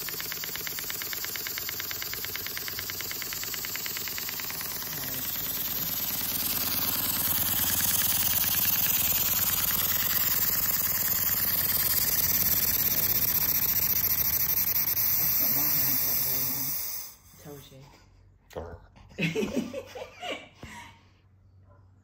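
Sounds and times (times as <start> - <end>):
steam engine exhaust beat: 0.0 - 17.4
steam hiss: 13.9 - 17.4.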